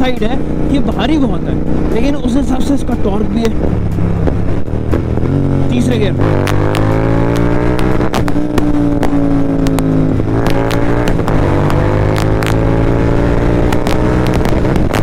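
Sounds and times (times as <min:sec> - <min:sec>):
motorcycle engine running: 0:00.0 - 0:15.0.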